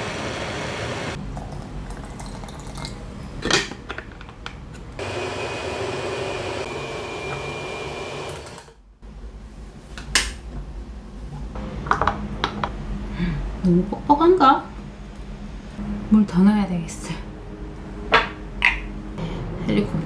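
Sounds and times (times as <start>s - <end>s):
blender running: 0.0s - 1.2s, 5.0s - 8.8s.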